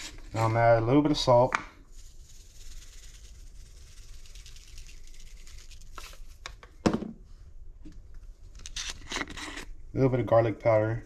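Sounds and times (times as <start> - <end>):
seasoning pattering on fish: 1.8 - 6.4.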